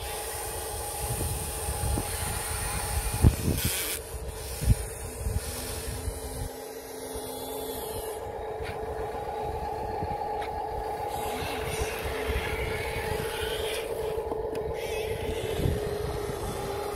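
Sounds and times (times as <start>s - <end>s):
electric motor whining: 0.0s - 16.9s
low rumble: 4.6s - 16.9s.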